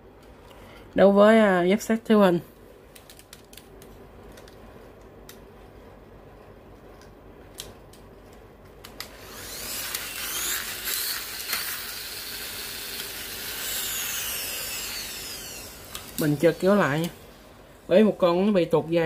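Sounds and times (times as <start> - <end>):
high whirring of toy gears: 9.0 - 17.2.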